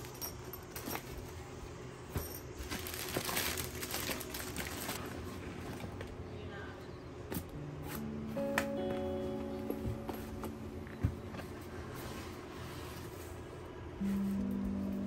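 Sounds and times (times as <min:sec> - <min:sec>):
plastic bags crinkling: 0:02.5 - 0:05.2.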